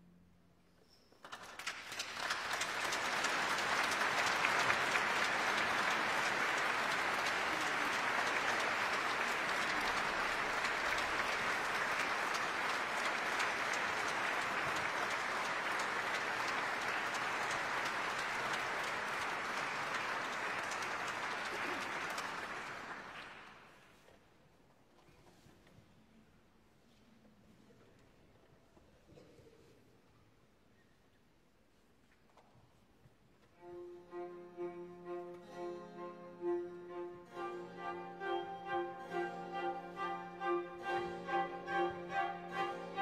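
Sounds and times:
audience applauding: 1.2s - 23.8s, 37.3s - 43.0s.

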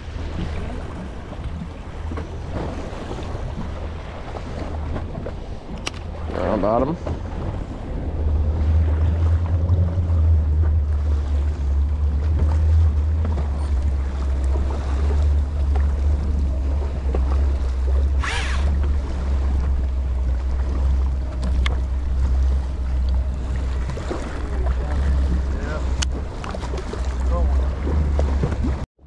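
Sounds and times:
boat low rumble: 0.0s - 29.0s.

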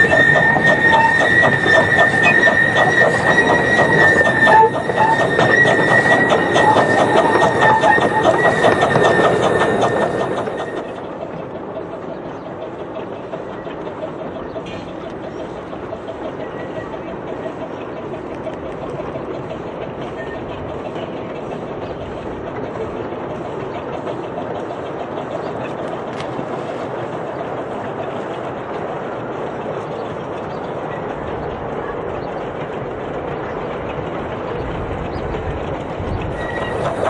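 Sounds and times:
miniature train rattling on track: 0.0s - 37.0s.

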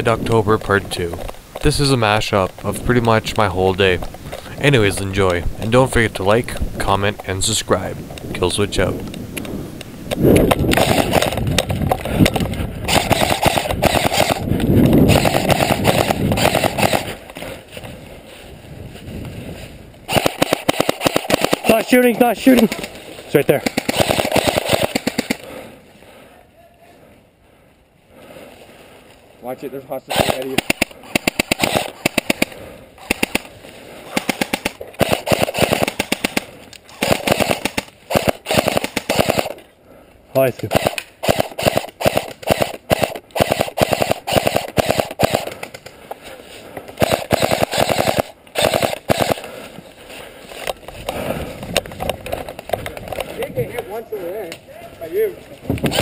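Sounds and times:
airsoft gun full-auto bursts: 10.7s - 11.4s, 12.9s - 17.2s, 20.1s - 23.0s, 23.6s - 25.4s, 30.1s - 33.5s, 34.1s - 39.6s, 40.6s - 45.8s, 47.0s - 49.6s.

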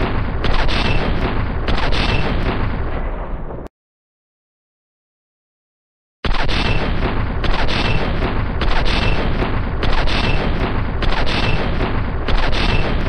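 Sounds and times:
heavy machine gun automatic fire: 0.0s - 3.6s, 6.2s - 13.0s.

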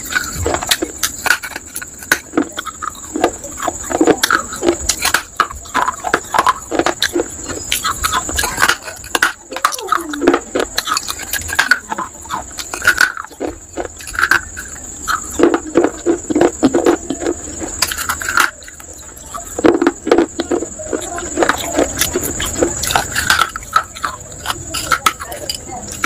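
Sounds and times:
clay cup crunching in mouth: 0.0s - 26.0s.

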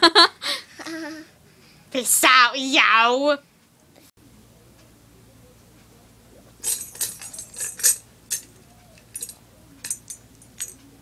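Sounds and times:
jingling and clinking shakes: 6.6s - 10.8s.

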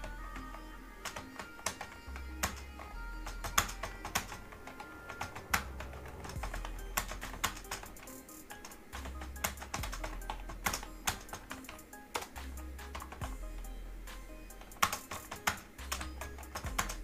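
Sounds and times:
background music with low bass: 0.0s - 17.0s.

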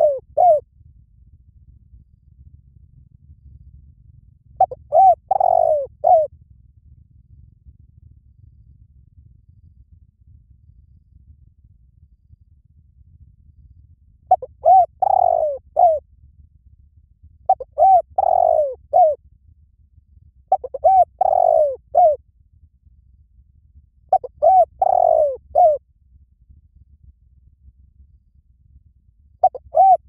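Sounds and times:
dove cooing: 0.0s - 0.6s, 4.6s - 6.3s, 14.3s - 16.0s, 17.5s - 19.2s, 20.5s - 22.2s, 24.1s - 25.8s, 29.4s - 30.0s.

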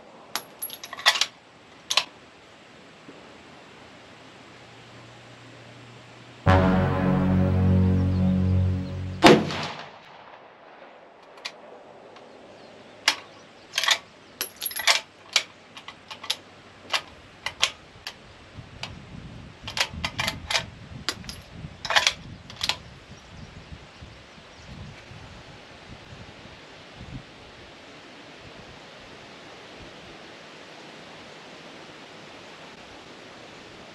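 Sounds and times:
music: 6.5s - 9.6s
rifle fire: 9.2s - 11.7s.

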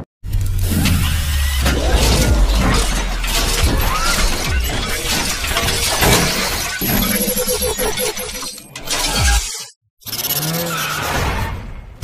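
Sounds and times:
music: 0.6s - 6.9s
crashing shattering noise: 1.6s - 7.2s.

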